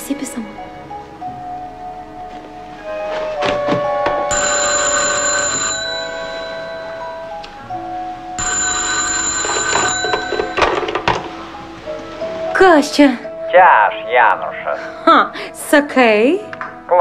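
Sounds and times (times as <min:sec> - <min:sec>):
background music: 0:00.0 - 0:17.0
telephone bell ringing: 0:04.3 - 0:07.3, 0:08.4 - 0:11.3.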